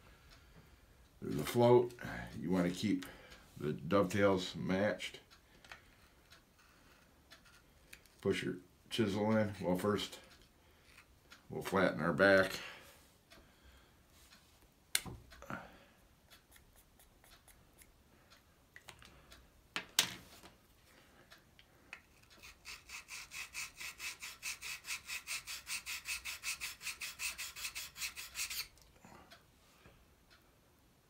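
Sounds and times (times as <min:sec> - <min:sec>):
chisel rubbing on sharpening plate: 0:22.1 - 0:28.7.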